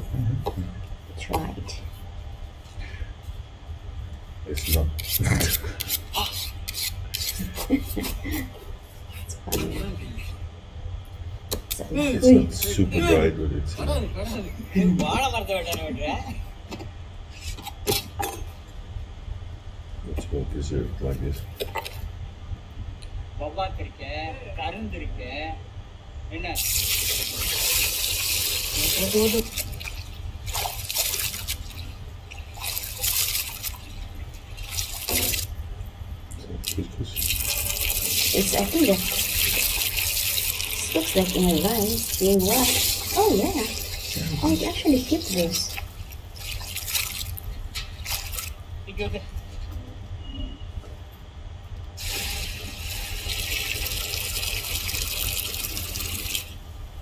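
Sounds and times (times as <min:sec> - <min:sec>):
low steady hum: 0:00.0 - 0:57.0
water pouring: 0:26.6 - 0:35.5, 0:37.2 - 0:48.6, 0:52.0 - 0:56.6
water splashing and sloshing: 0:26.8 - 0:35.6, 0:37.2 - 0:48.6.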